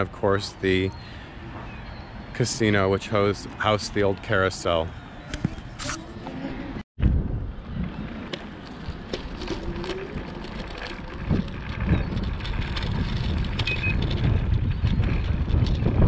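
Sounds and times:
wind buffeting microphone: 0:05.2 - 0:16.0.

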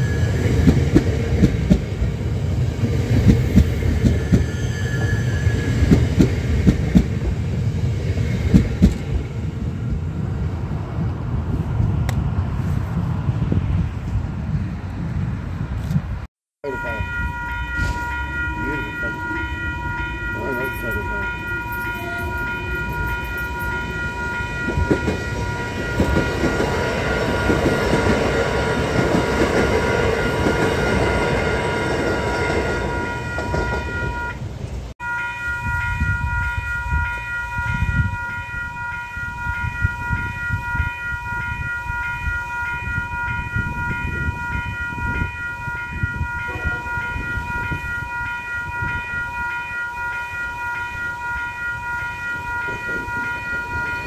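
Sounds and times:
level crossing alarm bells ringing: 0:16.6 - 0:34.4, 0:35.0 - 0:54.0.

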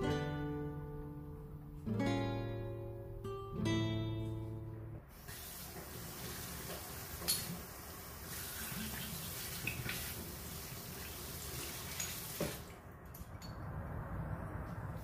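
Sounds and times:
tap running into metal sink: 0:06.6 - 0:07.7.

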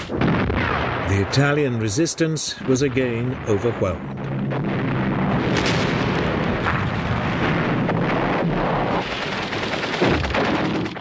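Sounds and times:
sharp explosive blasts: 0:00.0 - 0:02.0, 0:02.6 - 0:11.0
artillery fire and explosions: 0:00.0 - 0:11.0.

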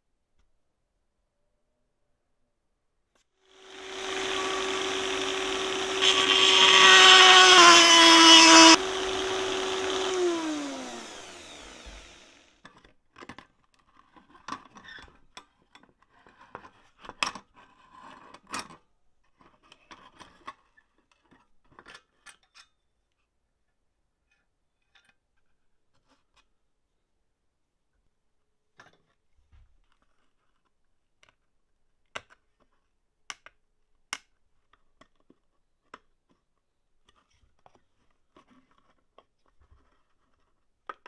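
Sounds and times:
power tool motor whining: 0:03.6 - 0:12.5.

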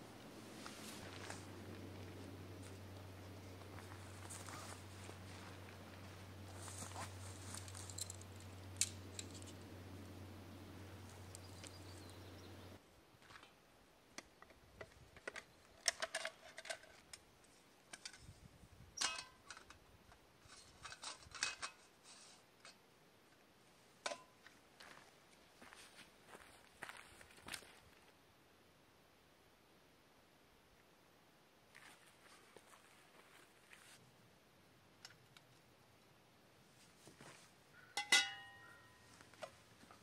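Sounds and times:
steady low hum: 0:00.0 - 0:12.8
camp cooking gear rattling: 0:06.5 - 0:09.6, 0:14.4 - 0:17.2.

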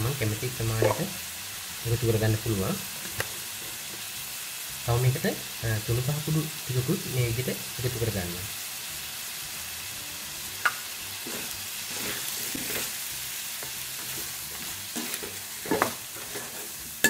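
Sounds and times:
vegetables sizzling in a pot: 0:00.0 - 0:17.0.

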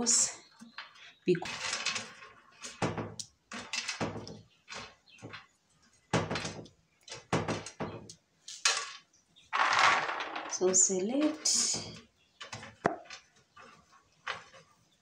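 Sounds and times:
peanuts rattling on metal tray: 0:00.7 - 0:05.5, 0:09.6 - 0:14.6.

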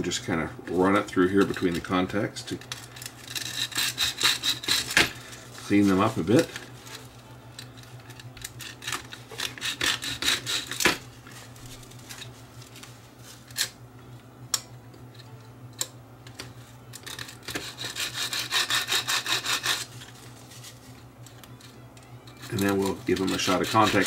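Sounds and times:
abrasive paper rasping on metal: 0:03.1 - 0:07.0, 0:08.6 - 0:11.0, 0:17.0 - 0:20.8, 0:22.4 - 0:24.0.

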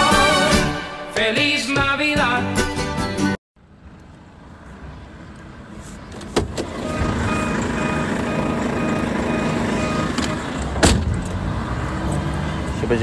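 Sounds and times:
short beeps: 0:06.8 - 0:10.4.

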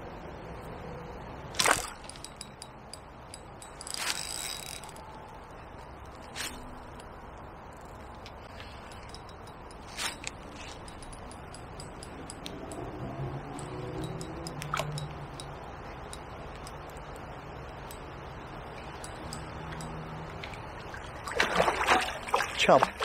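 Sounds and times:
low hum: 0:00.0 - 0:21.3
riverside background: 0:00.0 - 0:23.0
fishing reel clicking: 0:02.0 - 0:05.1, 0:07.7 - 0:18.0, 0:18.8 - 0:20.0.

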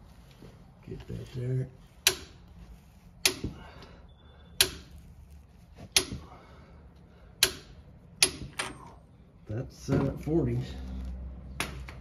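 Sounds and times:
torque wrench clicking: 0:07.4 - 0:08.6.

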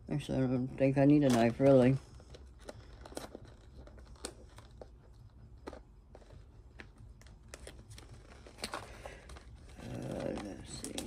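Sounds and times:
packaging crinkling: 0:01.2 - 0:11.0.

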